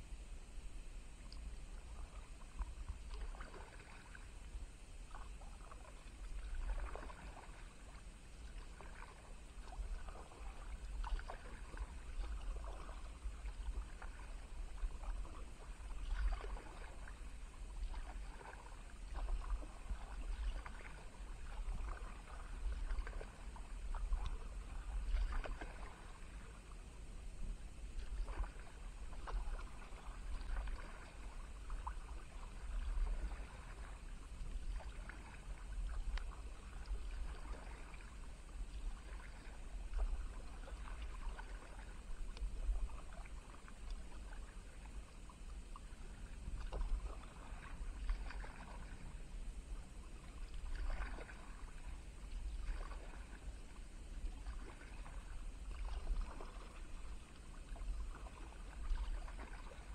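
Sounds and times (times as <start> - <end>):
paddle splashing into water: 2.0 - 4.3, 5.1 - 26.6, 28.0 - 44.8, 46.0 - 49.2, 50.2 - 59.9
water dripping off paddle: 2.6 - 4.2, 8.5 - 17.1, 17.8 - 26.3, 28.0 - 38.1.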